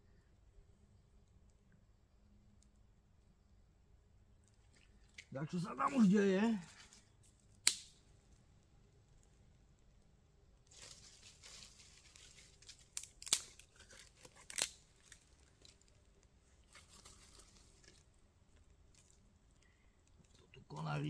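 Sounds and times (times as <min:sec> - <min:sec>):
fire rustling and crackling: 0:04.3 - 0:21.0
sharp wood snaps: 0:07.6 - 0:08.1, 0:12.4 - 0:15.9.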